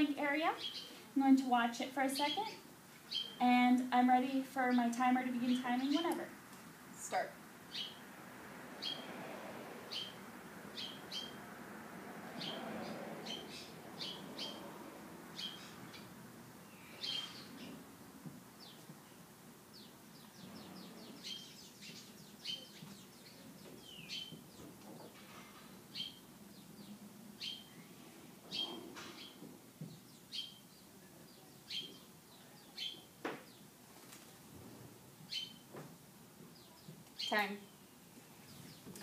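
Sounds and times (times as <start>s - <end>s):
small birds chirping: 0.0s - 1.0s, 2.0s - 3.6s, 7.1s - 8.0s, 8.8s - 9.1s, 9.9s - 11.4s, 12.4s - 17.9s, 18.5s - 33.8s, 35.3s - 35.8s, 36.4s - 39.0s
faint low background noise: 0.0s - 39.0s.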